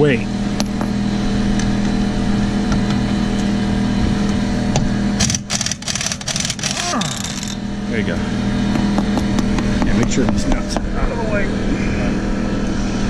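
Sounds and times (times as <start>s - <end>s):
low hum: 0.0s - 13.0s
impact wrench clatter: 5.2s - 7.6s.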